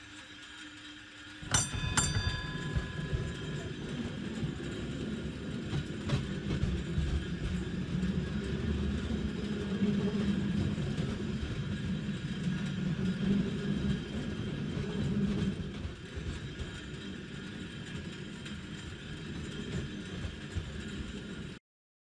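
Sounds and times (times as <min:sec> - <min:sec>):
tram wheels rumbling on rails: 0:00.1 - 0:21.6
tram click: 0:01.3 - 0:21.6.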